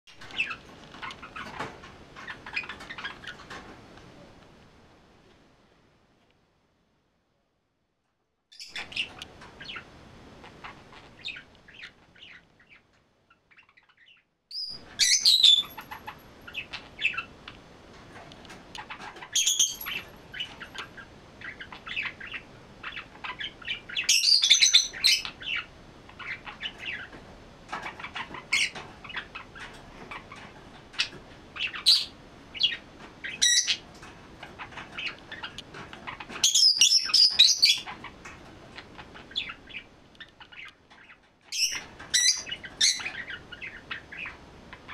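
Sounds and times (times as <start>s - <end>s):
budgerigar warbling and chirping: 8.6s - 17.3s, 18.8s - 27.1s, 31.0s - 33.8s, 34.6s - 38.1s, 39.0s - 44.9s.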